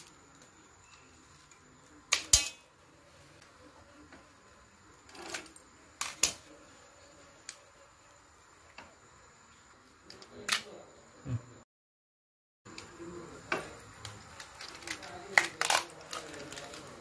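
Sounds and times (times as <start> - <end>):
scissors cracking crab shell: 14.0 - 16.8.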